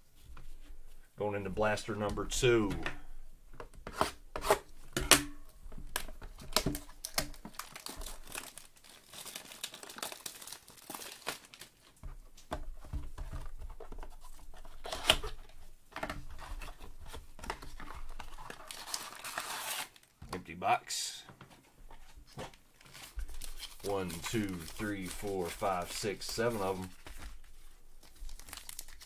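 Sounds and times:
wrapping tearing and crumpling: 6.0s - 12.0s, 17.6s - 20.2s, 22.8s - 29.0s.

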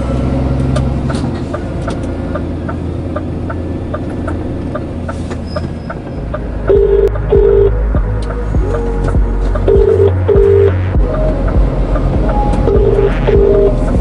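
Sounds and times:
diesel truck engine running: 0.0s - 14.0s
turn signal ticking: 0.6s - 14.0s.

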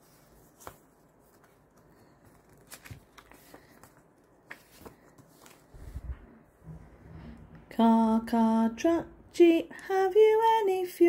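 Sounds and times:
book pages turning: 0.0s - 6.2s.

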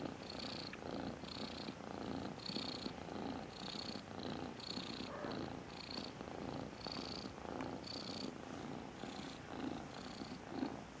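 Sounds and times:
cat purring: 0.0s - 11.0s.

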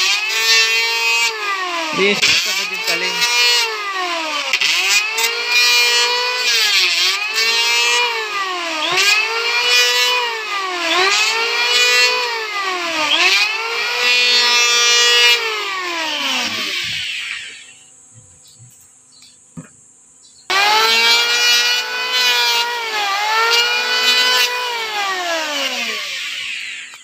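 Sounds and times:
electric planer cutting wood: 0.0s - 17.9s, 20.5s - 27.0s.

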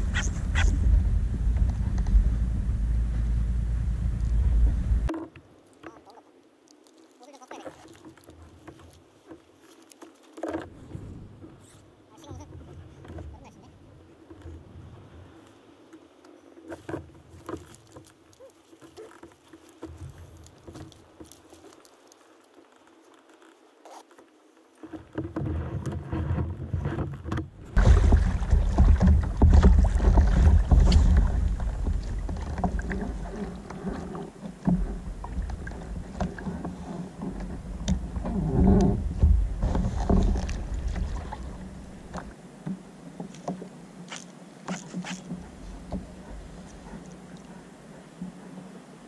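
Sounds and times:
kayak handling rumble: 0.0s - 6.3s, 6.9s - 49.0s
rod and reel clicks and knocks: 16.7s - 27.4s.

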